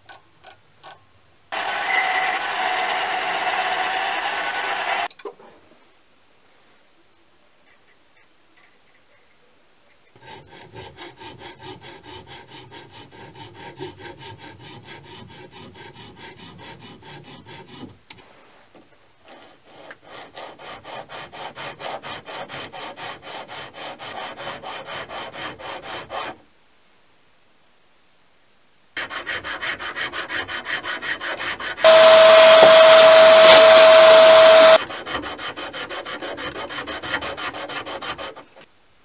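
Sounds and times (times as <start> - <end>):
metal block scraping on sandpaper: 10.0 - 26.4, 29.0 - 38.7.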